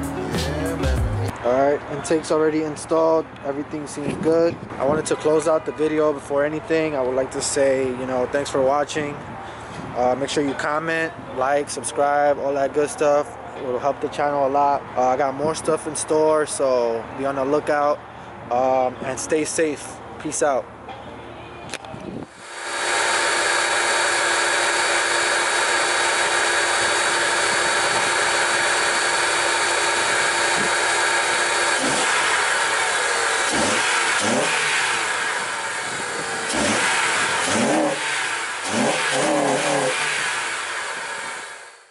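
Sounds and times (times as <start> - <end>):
car engine revving: 22.3 - 41.9.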